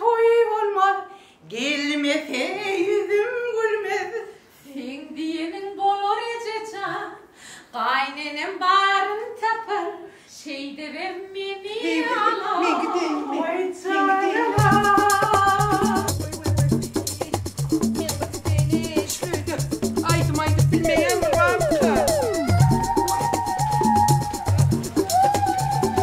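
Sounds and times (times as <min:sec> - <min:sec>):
woman singing: 0:00.0 - 0:24.2
backing track with bass and beat: 0:14.6 - 0:26.0.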